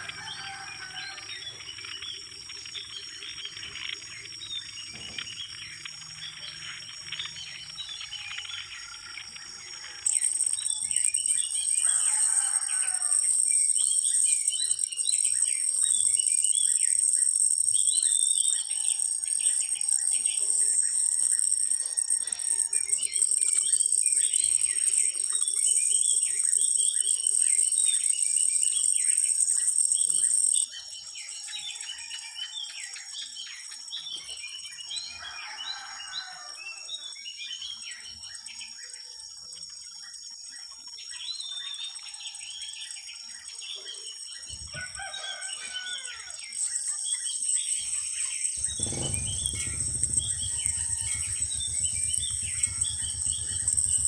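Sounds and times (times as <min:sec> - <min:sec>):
birds chirping: 0:00.0 - 0:31.1, 0:43.4 - 0:54.0
insects droning: 0:00.0 - 0:54.0
low rumble: 0:48.6 - 0:54.0.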